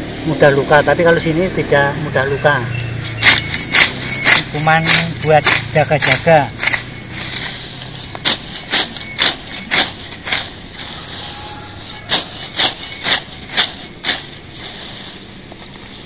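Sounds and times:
sickle slicing through grass: 3.0 - 16.0.

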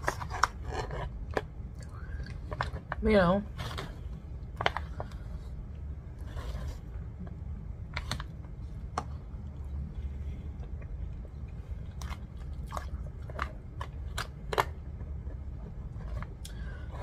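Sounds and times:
chewing: 10.6 - 14.7.

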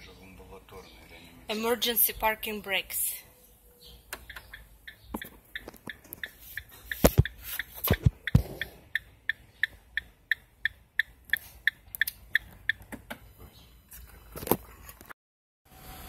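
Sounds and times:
loud thumps: 6.8 - 8.9.

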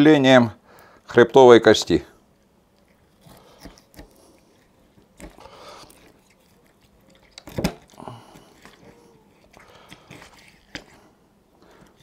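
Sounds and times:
knife cutting fish: 3.2 - 4.3.

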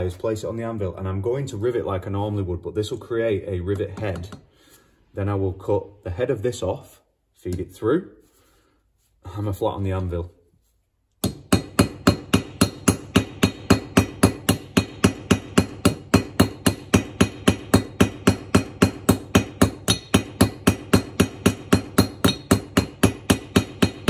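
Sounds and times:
hammer striking nail on anvil: 11.2 - 24.0.

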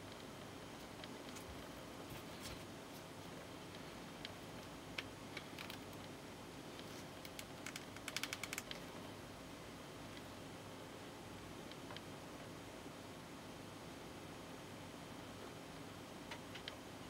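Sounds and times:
plastic figure parts clicking: 7.3 - 8.8.

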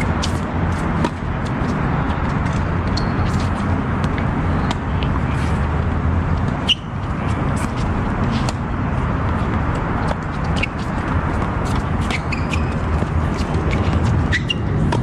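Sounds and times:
outdoor rumble and hiss: 0.0 - 15.0
short high squeak: 6.6 - 6.9, 12.0 - 12.8, 14.3 - 14.7.

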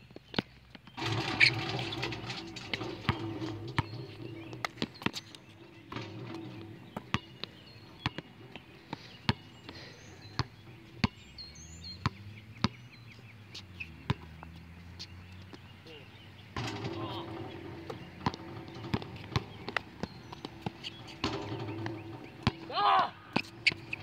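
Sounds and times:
basketball bouncing on hard court: 1.0 - 5.3, 5.9 - 8.5, 16.6 - 22.7
faint bird chirps: 3.0 - 24.0.

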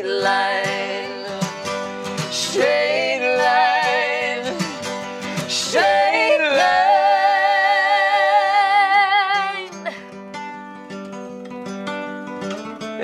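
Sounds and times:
woman singing wordless line: 0.0 - 10.0
strummed acoustic guitar: 0.0 - 13.0.

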